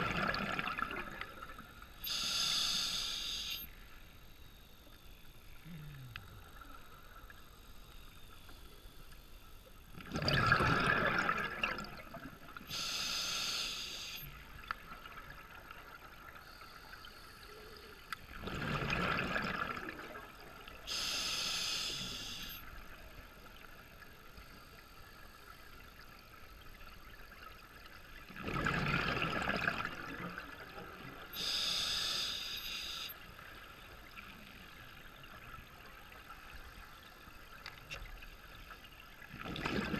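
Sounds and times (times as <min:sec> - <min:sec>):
regulator demand valve hiss: 0:02.0 - 0:03.7, 0:12.7 - 0:14.3, 0:20.9 - 0:22.6, 0:31.4 - 0:33.2.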